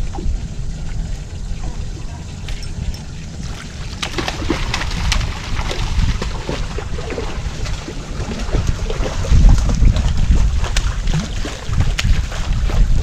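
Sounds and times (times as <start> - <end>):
wind rumble on microphone: 0.0 - 13.0
fish splashing in water: 3.2 - 13.0.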